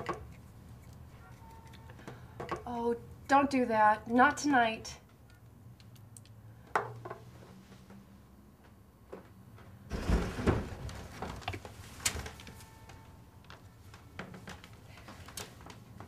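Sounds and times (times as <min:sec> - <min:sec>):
rustling thump: 0:09.9 - 0:11.4.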